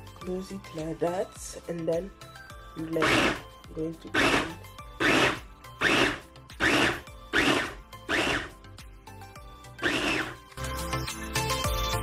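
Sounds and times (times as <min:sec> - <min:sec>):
blender pulsing: 0:02.9 - 0:03.5, 0:04.1 - 0:08.6, 0:09.8 - 0:10.5.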